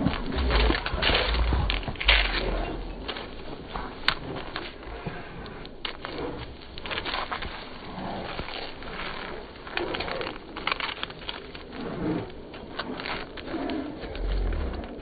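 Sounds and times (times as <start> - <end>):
dog claws scrabbling on paving: 0.0 - 15.0
dogs play growling: 0.0 - 15.0
low rumble: 0.0 - 15.0.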